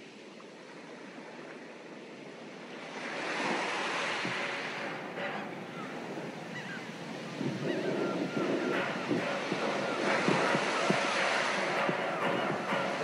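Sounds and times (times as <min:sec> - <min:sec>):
surf: 0:00.0 - 0:13.0
wind noise on microphone: 0:03.0 - 0:13.0.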